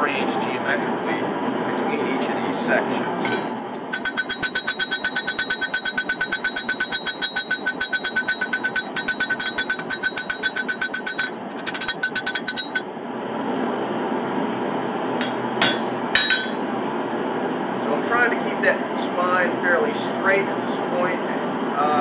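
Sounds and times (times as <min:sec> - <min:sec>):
steady background noise: 0:00.0 - 0:22.0
hammer blows ringing on anvil: 0:03.3 - 0:12.8, 0:15.2 - 0:16.6.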